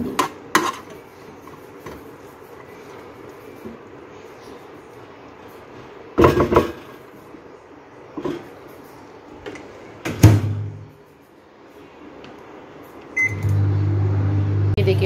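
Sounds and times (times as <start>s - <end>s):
microwave humming: 12.7s - 15.0s.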